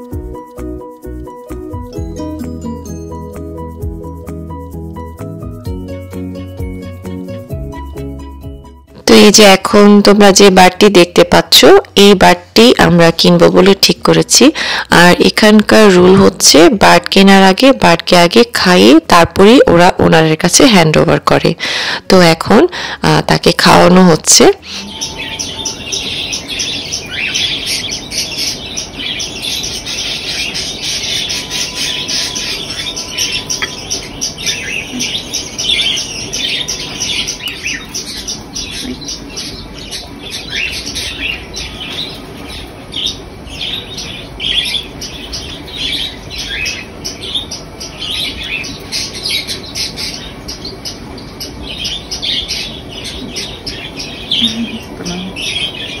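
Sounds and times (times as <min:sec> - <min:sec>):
budgerigars chirping and squawking: 0:14.5 - 0:15.5, 0:21.6 - 0:22.0, 0:23.6 - 0:56.0.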